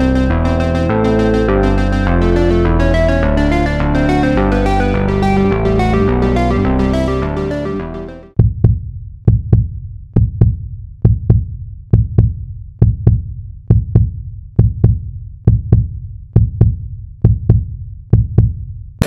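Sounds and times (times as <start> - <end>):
heartbeat thumps: 8.4 - 18.6.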